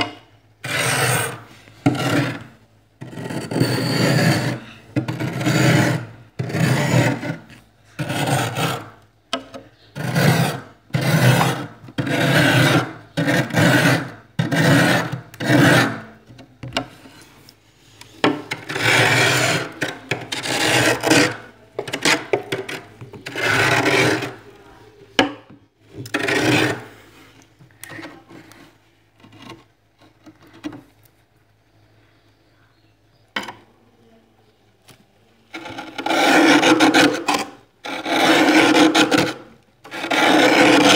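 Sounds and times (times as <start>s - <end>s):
scraper rasping on frost: 0.6s - 9.0s, 10.0s - 16.0s, 18.6s - 24.4s, 26.1s - 27.2s, 35.6s - 40.9s.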